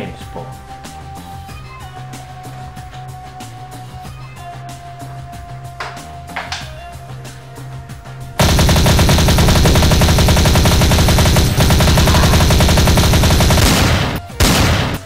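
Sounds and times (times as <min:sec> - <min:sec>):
machine-gun fire: 0:08.4 - 0:15.0.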